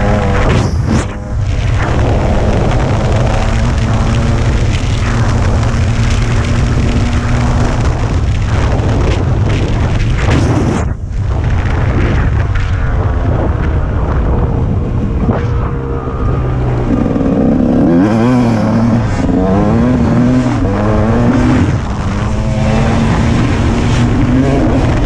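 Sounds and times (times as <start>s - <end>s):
dirt bike engine running: 0.0s - 25.0s
wind rush on microphone: 0.0s - 25.0s.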